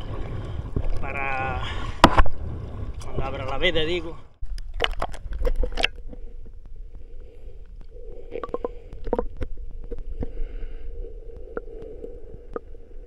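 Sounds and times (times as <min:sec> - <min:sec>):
low rumble of water underwater: 0:00.0 - 0:13.0
faint steady hum: 0:04.1 - 0:13.0
clicks and crackles: 0:04.4 - 0:13.0.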